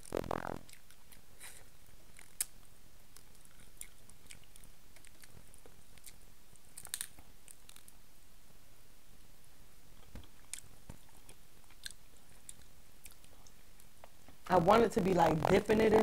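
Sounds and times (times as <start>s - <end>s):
person chewing: 0.0s - 7.9s, 10.0s - 14.1s.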